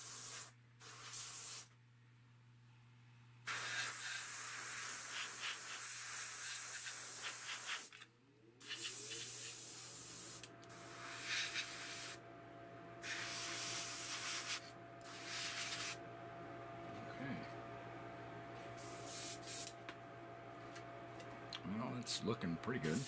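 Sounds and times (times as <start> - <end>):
airbrush spraying paint: 0.0 - 1.7, 3.5 - 8.0, 8.6 - 12.2, 13.0 - 16.0, 18.8 - 19.8
steady low hum: 8.0 - 23.0.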